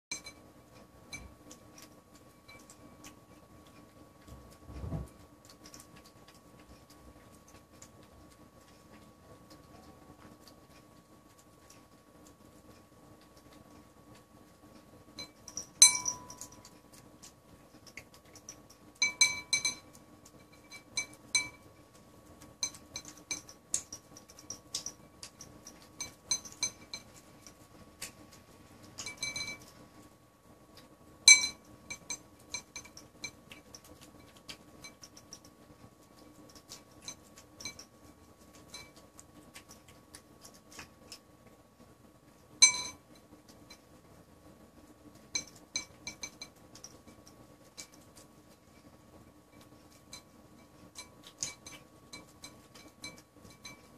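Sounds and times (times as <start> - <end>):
clinks against ceramic bowl: 0.1 - 0.4, 15.2 - 16.7, 18.5 - 21.6, 26.0 - 27.1, 29.0 - 29.7, 31.3 - 33.4, 42.6 - 43.0, 45.4 - 46.9, 51.0 - 53.9
cat chewing and licking: 0.1 - 53.9.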